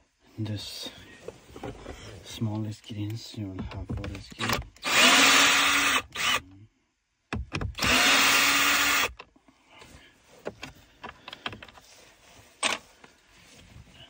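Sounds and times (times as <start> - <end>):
cordless drill spinning screws: 4.4 - 6.4, 7.8 - 9.2.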